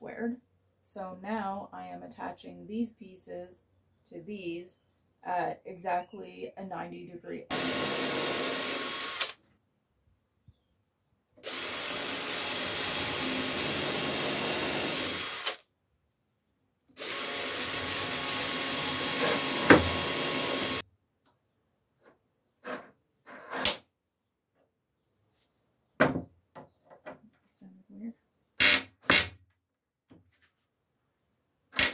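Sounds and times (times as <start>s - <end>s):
cordless drill boring into wood: 7.5s - 9.4s, 11.4s - 15.6s, 17.0s - 20.8s, 28.6s - 29.2s.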